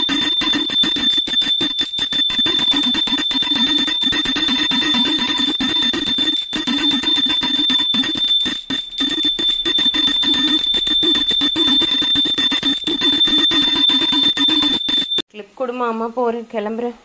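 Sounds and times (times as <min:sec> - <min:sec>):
hand bell ringing: 0:00.0 - 0:15.2.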